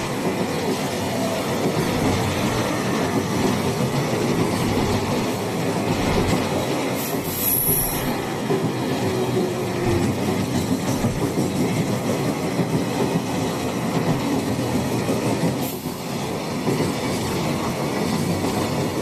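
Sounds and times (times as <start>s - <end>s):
freight train rumbling: 0.0s - 19.0s
wheels clattering on rails: 0.0s - 19.0s.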